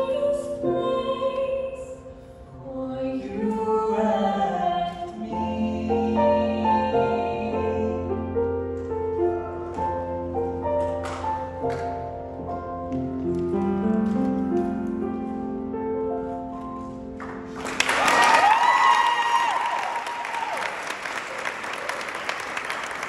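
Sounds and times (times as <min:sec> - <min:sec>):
piano chords: 0:00.0 - 0:18.6
audience applause: 0:17.2 - 0:23.0
whooping cheer: 0:17.8 - 0:22.8.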